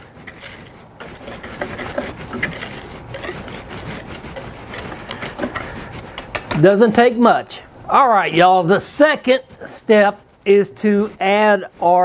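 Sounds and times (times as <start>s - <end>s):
whisk scraping a bowl: 0.0s - 7.7s, 8.4s - 12.0s.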